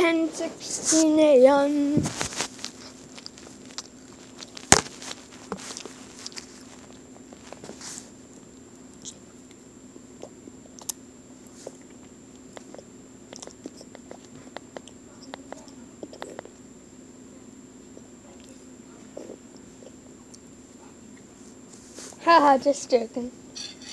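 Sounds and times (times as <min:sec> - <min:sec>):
soft rustles: 0:00.0 - 0:08.2, 0:21.3 - 0:22.3
faint steady hum: 0:00.0 - 0:23.9.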